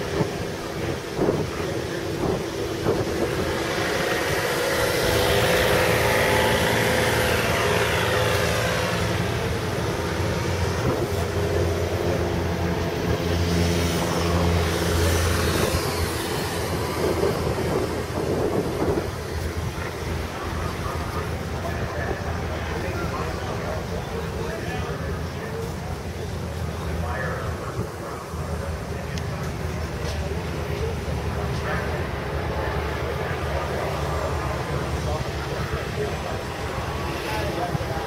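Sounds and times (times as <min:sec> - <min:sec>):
aircraft engine running: 0:00.0 - 0:38.0.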